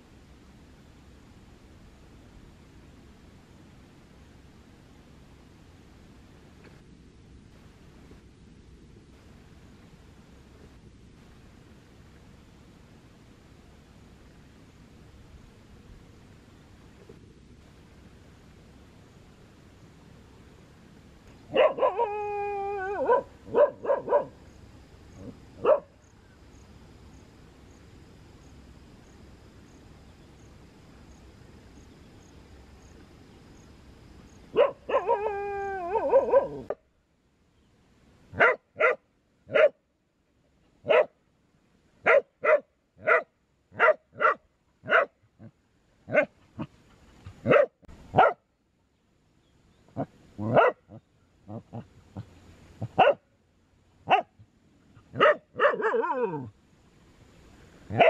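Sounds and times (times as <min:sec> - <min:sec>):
dog barking sharply: 0:21.5 - 0:22.0, 0:23.1 - 0:24.3, 0:34.6 - 0:35.1, 0:38.4 - 0:39.8, 0:40.9 - 0:41.1, 0:42.0 - 0:45.1, 0:47.5 - 0:48.4, 0:50.4 - 0:50.8, 0:55.2 - 0:56.4
dog yelping: 0:21.5 - 0:24.3, 0:34.6 - 0:36.8, 0:50.4 - 0:50.8, 0:55.2 - 0:56.5
dog long pitched calls: 0:21.5 - 0:24.4, 0:34.5 - 0:36.8, 0:50.0 - 0:53.2, 0:55.0 - 0:56.5.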